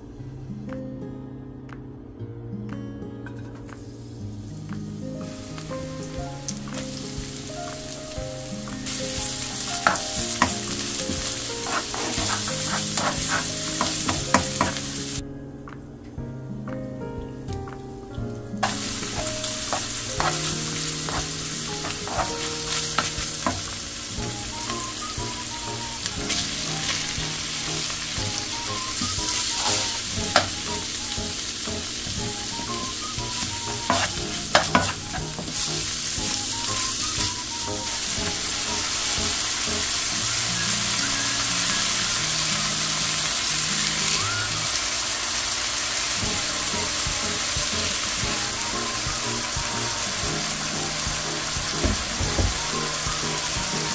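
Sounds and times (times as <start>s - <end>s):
soft background music: 0.0s - 53.9s
food sizzling in a pan: 4.9s - 15.2s, 18.6s - 53.9s
utensil knocking against pan: 9.8s - 14.8s, 23.0s - 23.7s, 33.9s - 35.7s.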